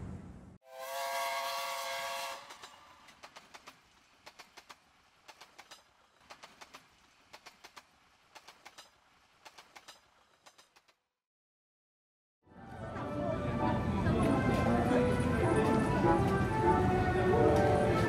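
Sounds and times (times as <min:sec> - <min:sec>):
train whistle: 0:00.6 - 0:03.0
train wheels clickety-clack: 0:02.3 - 0:11.0.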